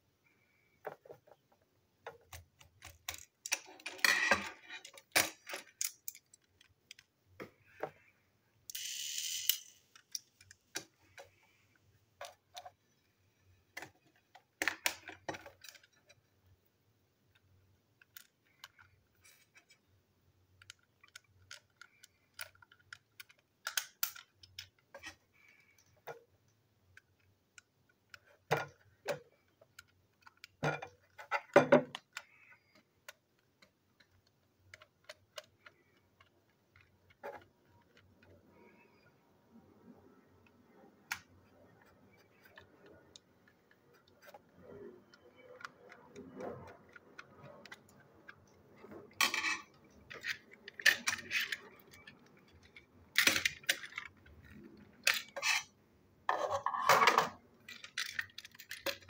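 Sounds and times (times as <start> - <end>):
screwdriver clicking on toy parts: 8.7 - 10.6, 20.6 - 25.2, 31.9 - 37.2.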